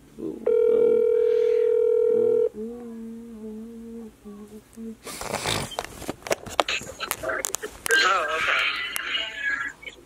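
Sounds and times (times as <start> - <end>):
phone electronic tone: 0.4 - 2.5
woman humming: 2.2 - 5.2
fabric rustling against phone: 5.2 - 8.0.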